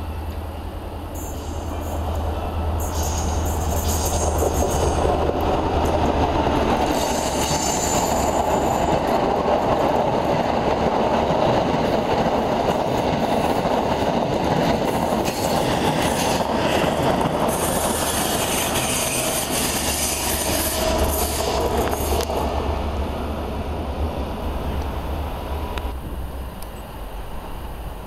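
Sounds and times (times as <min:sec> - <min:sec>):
train wheels rumbling on rails: 0:00.0 - 0:28.0
high wheel squeal: 0:01.2 - 0:05.0, 0:06.9 - 0:08.8, 0:17.5 - 0:22.3.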